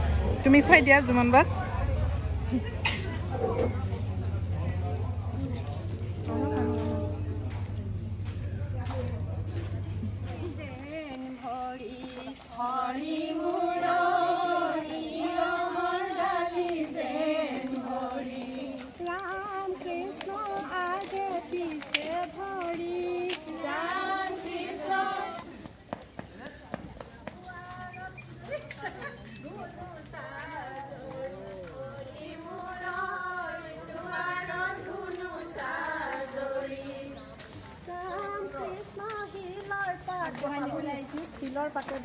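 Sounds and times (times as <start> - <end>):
people talking: 0.0 - 42.0
high-pitched singing voices: 10.5 - 25.6, 29.4 - 40.6.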